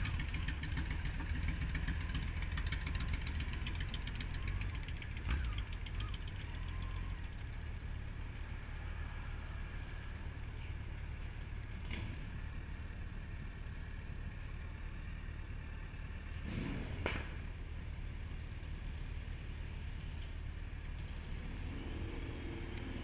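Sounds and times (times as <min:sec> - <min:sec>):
motorcycle engine idling: 0:00.0 - 0:16.4.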